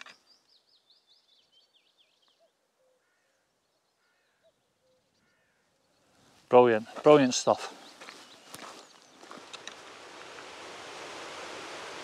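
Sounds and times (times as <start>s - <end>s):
distant cuckoo calling: 0.0s - 6.3s
small songbirds chirping: 0.0s - 9.9s.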